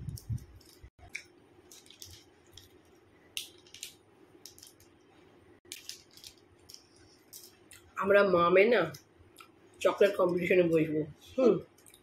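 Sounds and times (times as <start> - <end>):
wrapper crinkling: 0.0 - 7.9.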